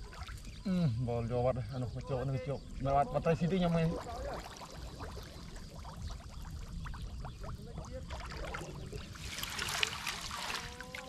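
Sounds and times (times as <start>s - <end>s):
water splashing and trickling: 0.0s - 0.9s, 1.6s - 11.0s.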